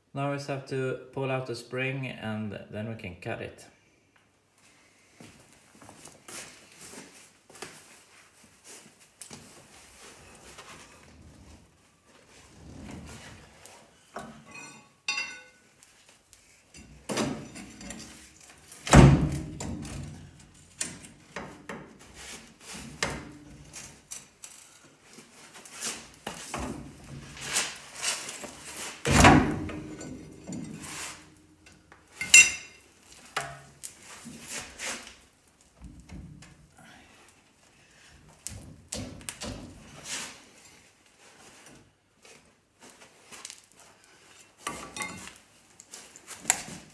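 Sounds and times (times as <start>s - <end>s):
metal clanks and knocks: 14.2s - 15.6s, 29.1s - 31.2s
ringing metal clinks: 14.5s - 15.6s, 32.2s - 32.8s.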